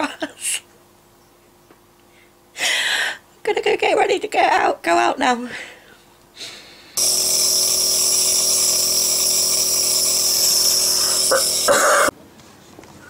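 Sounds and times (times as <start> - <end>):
nebulizer motor humming and hissing: 7.0 - 12.1.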